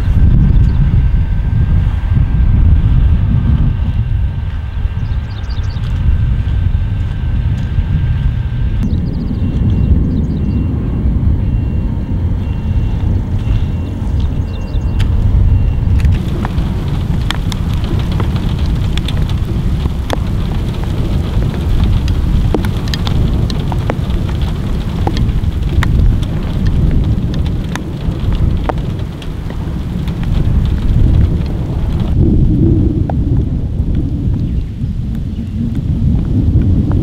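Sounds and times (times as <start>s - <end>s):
thunder rumbling: 0.0s - 37.0s
steady rain: 12.1s - 37.0s
raindrops ticking close by: 12.3s - 37.0s.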